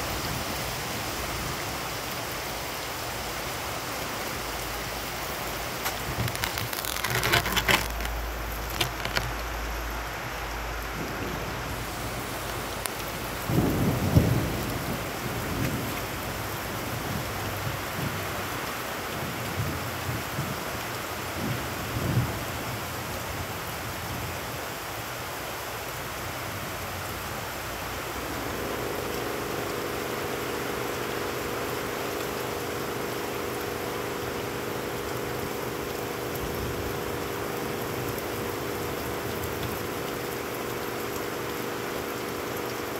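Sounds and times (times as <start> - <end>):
heavy rain on pavement: 0.0 - 42.9
thunder rumbling: 10.8 - 18.3.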